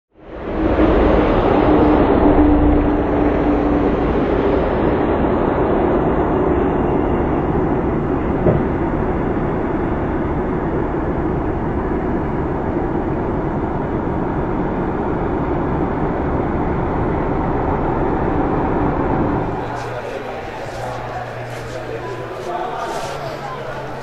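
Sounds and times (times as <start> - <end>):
diesel truck engine running: 8.0 - 24.0
brief knock: 8.4 - 8.7.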